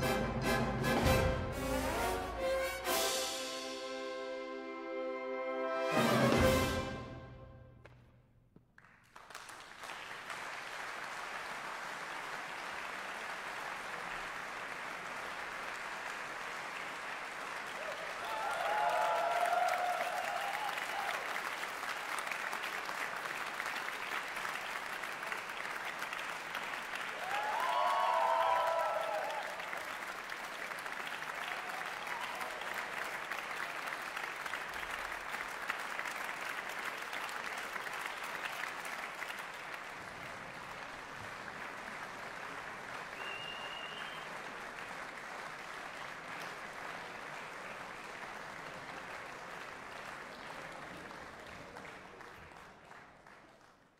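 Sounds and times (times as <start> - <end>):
audience applauding: 8.8 - 53.9
people cheering: 17.5 - 44.6.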